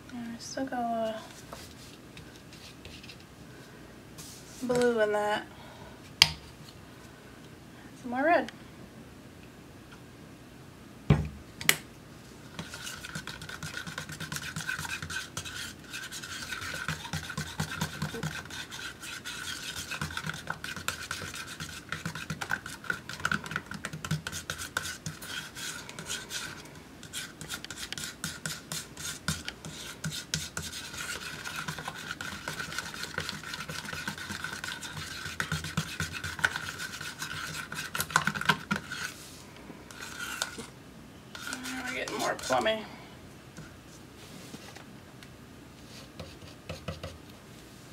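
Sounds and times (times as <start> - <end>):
palette knife scraping paint in cup: 12.5 - 39.2, 39.9 - 40.7, 41.3 - 42.7.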